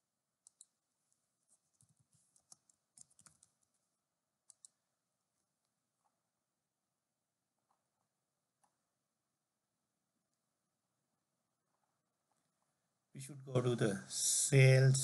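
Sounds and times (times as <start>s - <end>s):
mouse clicks: 0.4s - 1.2s, 1.8s - 3.7s, 4.4s - 4.8s
keyboard typing: 0.4s - 3.8s, 4.4s - 4.8s.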